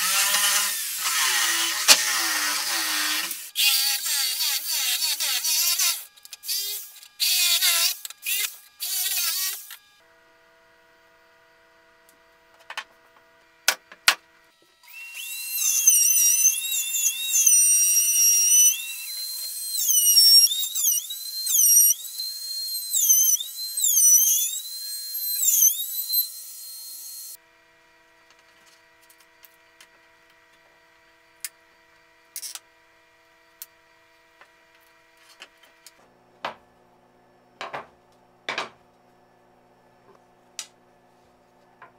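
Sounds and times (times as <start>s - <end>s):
jigsaw cutting: 0.0s - 9.7s
trim router whining: 14.8s - 27.4s.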